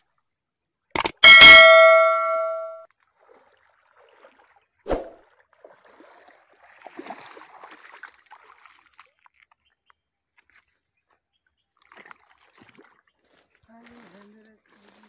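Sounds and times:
fish splashing at water surface: 0:03.2 - 0:09.4.

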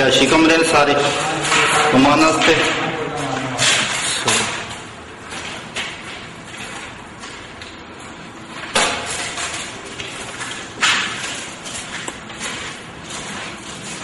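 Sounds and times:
sharp knocks in empty room: 0:08.7 - 0:09.4.

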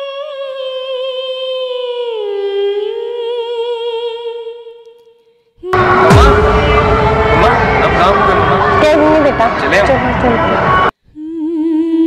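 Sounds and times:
loud street noise: 0:05.8 - 0:10.9.

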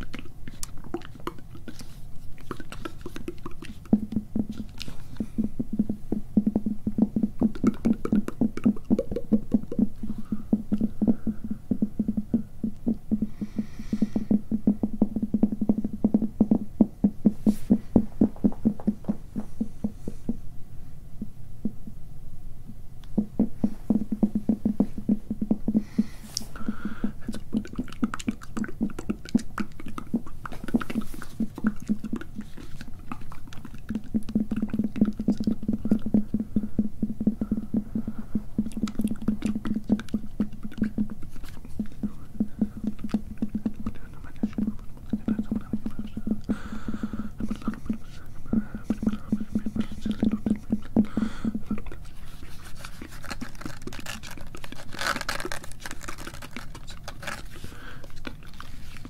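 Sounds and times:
scratching on microphone mesh: 0:47.4 - 0:59.0.

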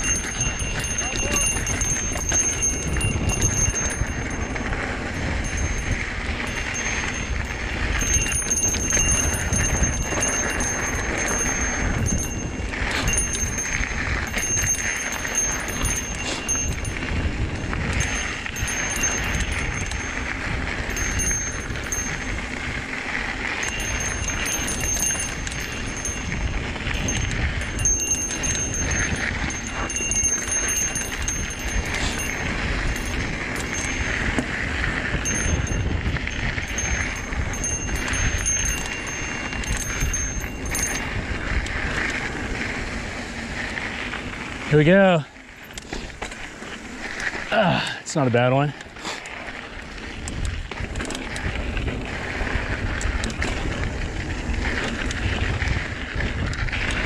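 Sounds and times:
high metallic jingling: 0:00.0 - 0:57.0
rumbling over rough ground: 0:00.0 - 0:57.0
wind and tyre noise: 0:00.0 - 0:57.0.

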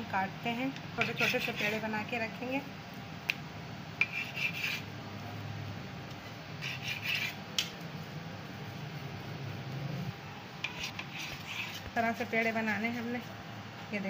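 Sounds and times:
steady low hum: 0:00.0 - 0:14.0
knife scraping on stone counter: 0:01.0 - 0:01.8, 0:04.0 - 0:04.9, 0:06.6 - 0:07.4, 0:10.6 - 0:12.0.

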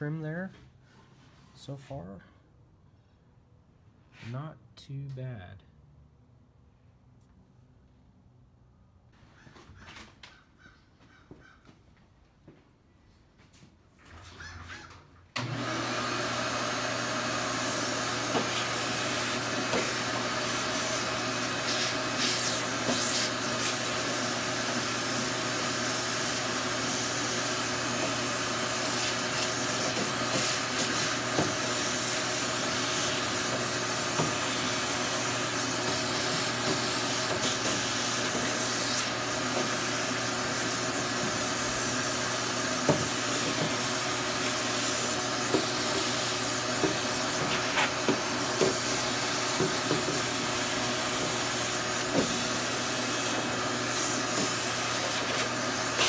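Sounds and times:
shop vacuum running: 0:15.3 - 0:56.0.

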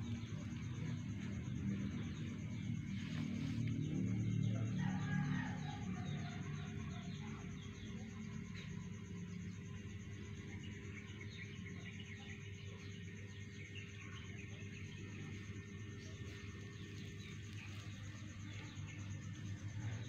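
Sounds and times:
insect trilling: 0:00.0 - 0:20.0
low steady hum: 0:00.0 - 0:20.0.

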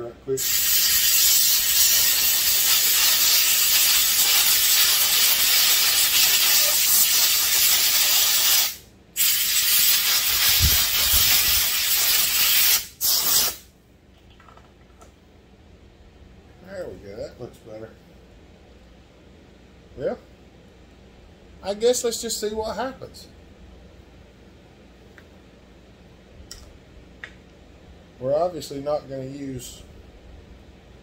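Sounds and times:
air blow gun hissing: 0:00.4 - 0:13.7.

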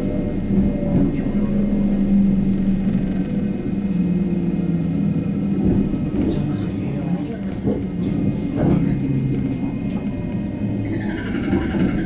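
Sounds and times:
lower hum: 0:00.0 - 0:06.3
train rumble with low hum: 0:00.0 - 0:12.0.

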